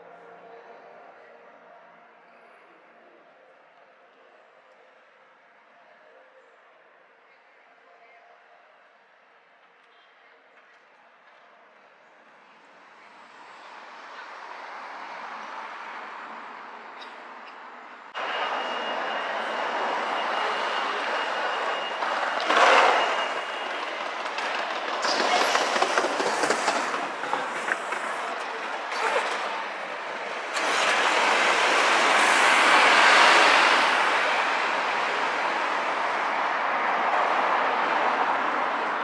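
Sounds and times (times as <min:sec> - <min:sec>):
city street traffic: 0:09.0 - 0:39.0.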